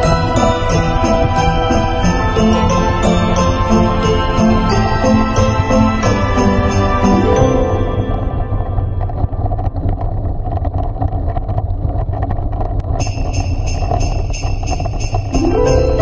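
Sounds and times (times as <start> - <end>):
sleigh bells jingling: 0.0 - 8.6, 13.0 - 16.0
christmas-style background music: 0.0 - 9.3, 13.0 - 16.0.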